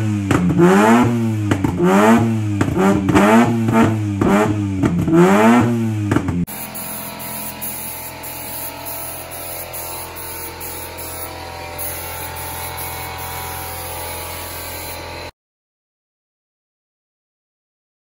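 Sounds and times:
spray gun hissing: 6.5 - 15.3
steady low hum: 6.5 - 15.3.

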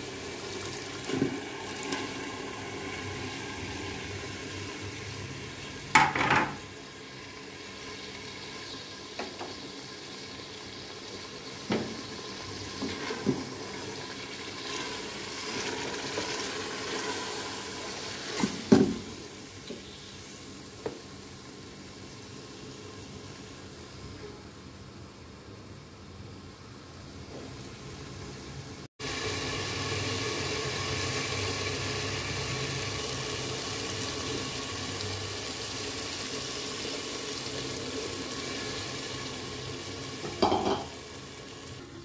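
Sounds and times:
dal sizzling in oil: 0.0 - 24.2, 29.0 - 42.0
knocks against a metal pot: 5.9 - 6.6, 40.3 - 40.9.

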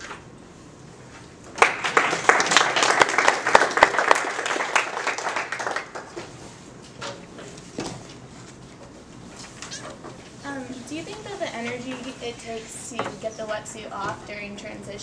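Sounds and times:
small audience clapping: 1.5 - 6.4.

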